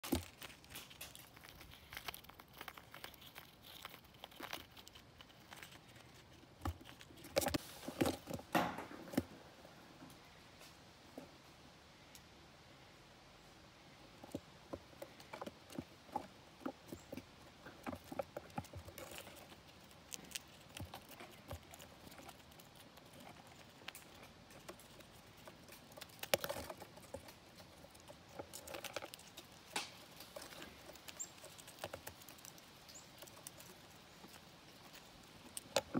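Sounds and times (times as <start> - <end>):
squirrel cracking peanut shells: 0.0 - 9.3, 14.0 - 35.9.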